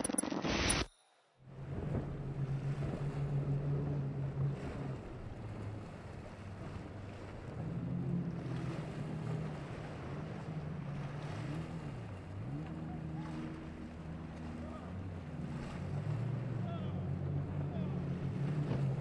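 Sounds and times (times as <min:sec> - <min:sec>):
outboard engines droning: 0:01.4 - 0:19.0
wind buffeting microphone: 0:01.5 - 0:11.4
water wash: 0:01.5 - 0:19.0.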